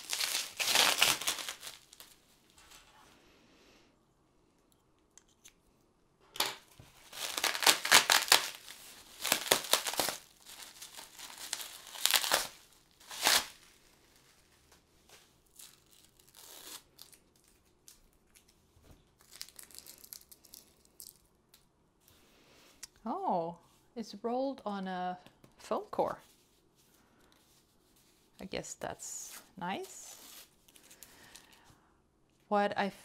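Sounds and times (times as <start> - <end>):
bubble wrap crinkling and tearing: 0.0 - 2.6, 6.7 - 21.7, 29.2 - 31.7.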